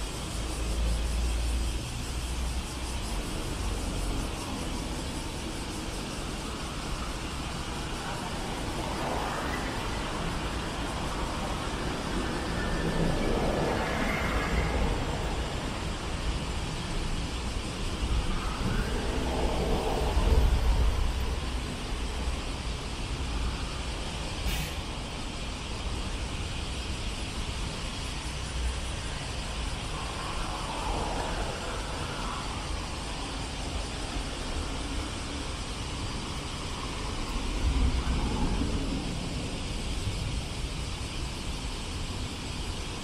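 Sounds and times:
passing vehicles engine and tyre noise: 0.0s - 43.0s
short hiss: 24.4s - 25.0s.

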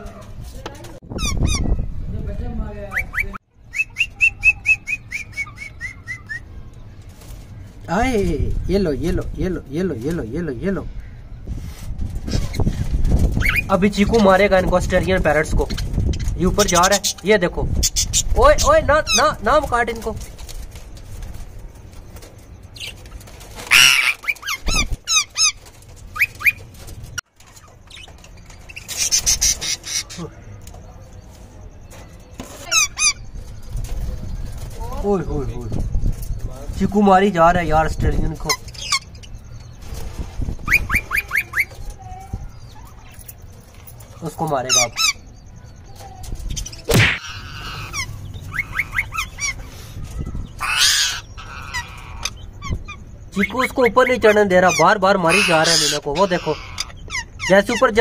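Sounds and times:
birds chirping: 0.0s - 58.0s
parrots screeching harshly: 1.1s - 1.8s, 12.2s - 13.8s, 17.8s - 19.4s, 22.8s - 26.9s, 27.5s - 30.3s, 32.4s - 33.3s, 38.4s - 39.3s, 40.6s - 41.8s, 44.7s - 45.2s, 46.6s - 58.0s
wings fluttering: 2.9s - 9.2s, 11.4s - 58.0s.

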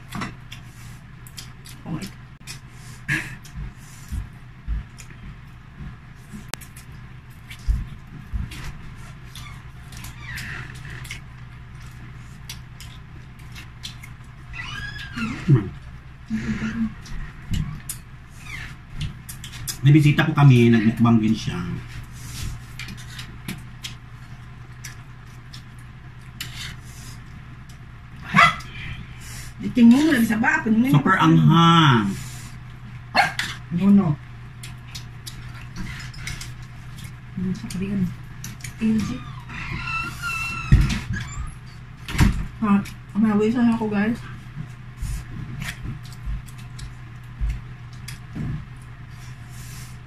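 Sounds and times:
low steady hum: 0.0s - 50.0s
crunchy chewing of fried chicken: 34.3s - 38.8s.

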